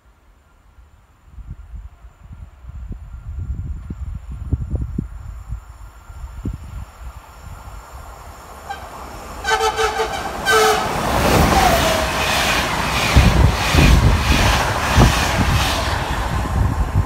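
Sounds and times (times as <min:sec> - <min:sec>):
wheels rushing on rail: 0:00.1 - 0:17.0
train horn blasts: 0:08.6 - 0:12.6.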